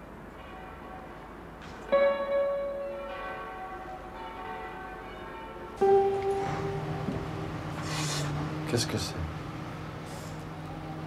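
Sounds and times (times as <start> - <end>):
church bells ringing: 0.0 - 11.0.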